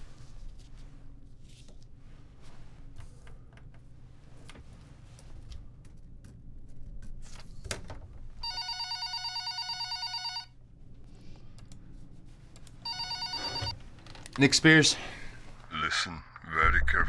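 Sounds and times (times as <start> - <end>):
telephone ringing: 8.4 - 10.6, 12.8 - 13.8.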